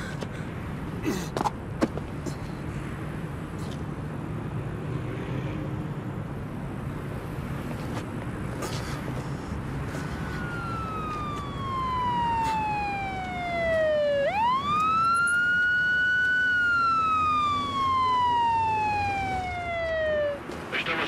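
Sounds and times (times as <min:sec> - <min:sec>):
low traffic rumble: 0:00.0 - 0:21.0
police siren wailing: 0:09.9 - 0:21.0.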